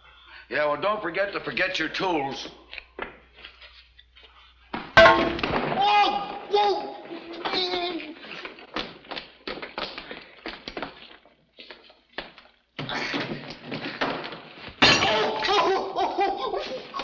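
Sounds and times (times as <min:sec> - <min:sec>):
objects clattering and crashing: 0:05.0 - 0:07.6, 0:12.8 - 0:15.6
loud voices: 0:05.0 - 0:08.3.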